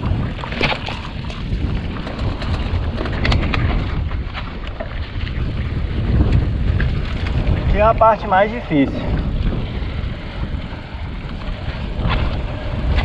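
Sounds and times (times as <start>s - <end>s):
wind rumbling on microphone: 0.0s - 13.0s
bike chain and frame rattling: 1.4s - 4.2s.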